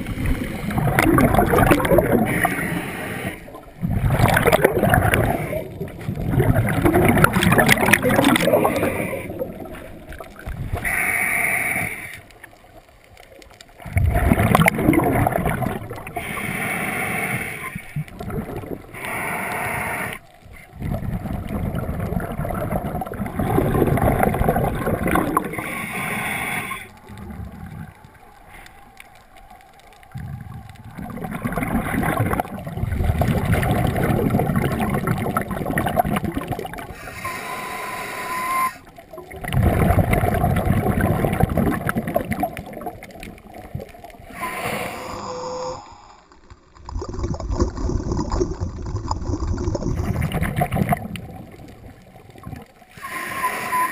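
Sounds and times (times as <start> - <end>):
scuba regulator breathing: 0.0 - 6.0, 8.2 - 10.0, 10.8 - 12.4, 16.0 - 18.1, 18.9 - 20.7, 25.2 - 27.7, 36.8 - 38.9, 44.2 - 46.0, 52.9 - 53.9
exhaled bubbles gurgling: 0.0 - 45.4, 46.4 - 53.9.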